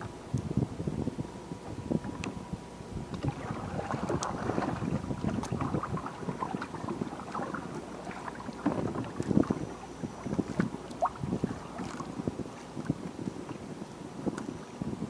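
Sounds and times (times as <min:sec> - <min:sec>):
water lapping at hull: 0:00.0 - 0:15.0
wind on microphone: 0:00.0 - 0:15.0
paddle stroking water: 0:03.1 - 0:14.6
water splashing: 0:03.2 - 0:12.2.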